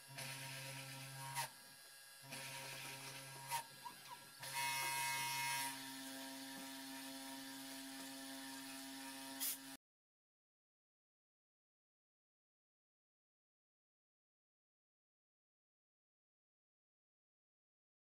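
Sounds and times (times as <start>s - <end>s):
spindle motor running: 2.2s - 9.8s
hissy cutting sound: 9.3s - 9.8s.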